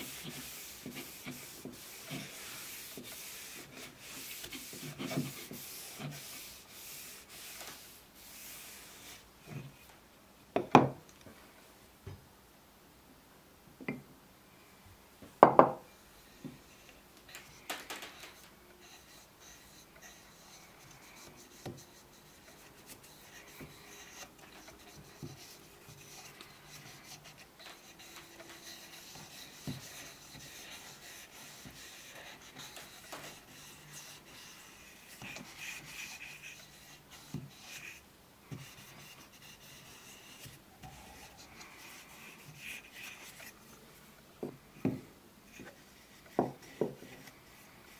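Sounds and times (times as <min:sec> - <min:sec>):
cloth rubbing on wood: 0:00.0 - 0:09.3, 0:18.2 - 0:43.8.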